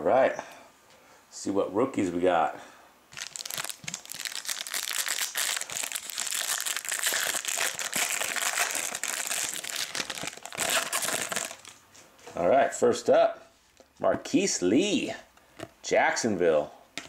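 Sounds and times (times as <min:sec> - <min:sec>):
foil wrapper crinkling: 0:03.1 - 0:11.8.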